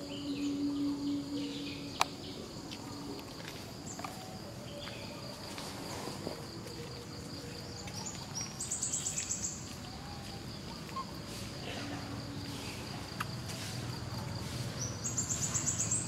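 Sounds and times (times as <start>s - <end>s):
high-pitched insect drone: 0.0s - 3.1s.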